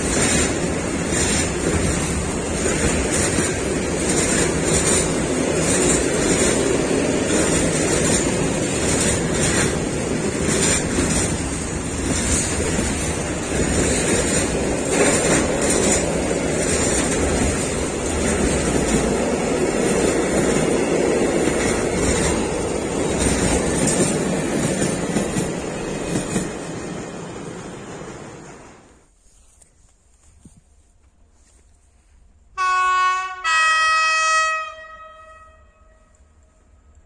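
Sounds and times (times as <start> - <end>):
train wheels rumbling on rails: 0.0 - 29.2.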